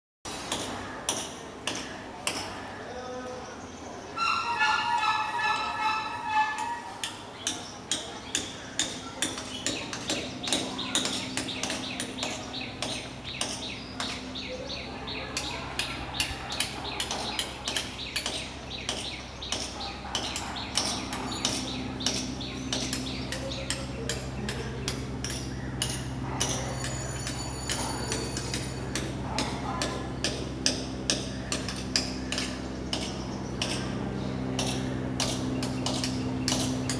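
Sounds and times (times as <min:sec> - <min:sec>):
woodpecker pecking on trunk: 0:15.3 - 0:26.7, 0:34.6 - 0:36.9.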